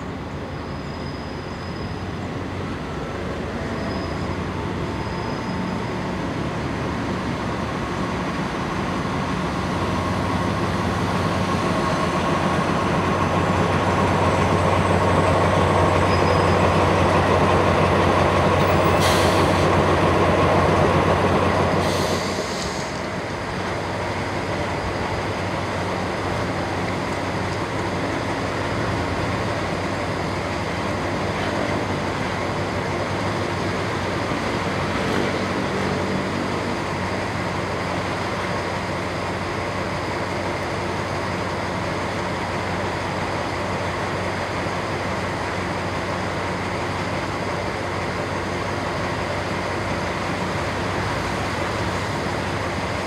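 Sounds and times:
diesel locomotive engine drone: 0.0 - 53.0
train carriages rolling past: 0.0 - 53.0
brief hisses: 21.8 - 23.1.

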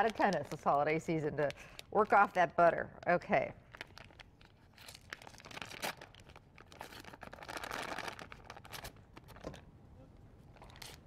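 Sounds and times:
paper wrappers crinkling and tearing: 0.0 - 2.4, 3.6 - 9.4, 10.6 - 11.0.

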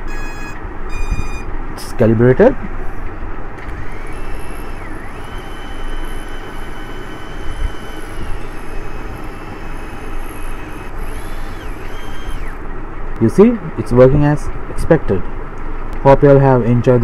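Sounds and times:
drone motors whining: 0.0 - 1.5, 2.6 - 12.8.

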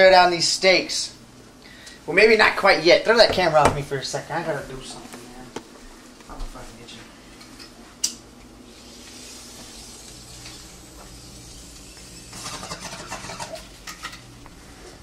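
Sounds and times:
faint room hum: 0.0 - 15.0
rustling and handling noise: 3.2 - 8.0.

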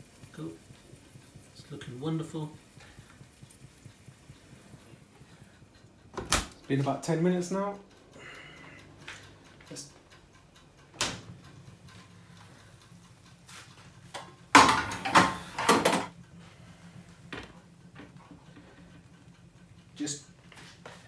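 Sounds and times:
metal tray clattering on hob: 14.6 - 16.1.

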